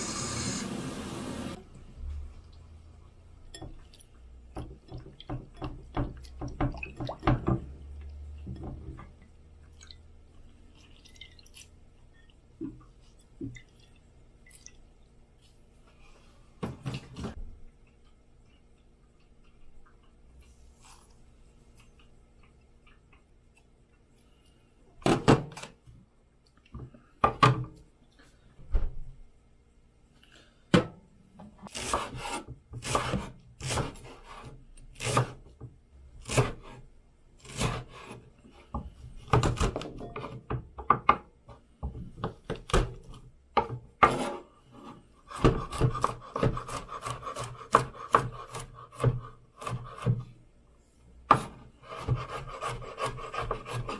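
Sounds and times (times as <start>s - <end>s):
knife chopping on wooden board: 45.3s - 50.3s, 51.3s - 53.9s.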